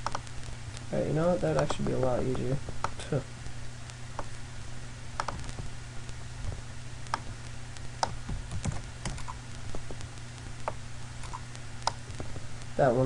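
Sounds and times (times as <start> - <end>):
keyboard and mouse clicks: 0.0 - 0.2, 1.5 - 2.0, 5.2 - 5.7, 8.0 - 10.0, 10.6 - 12.0
steady low hum: 0.0 - 13.0.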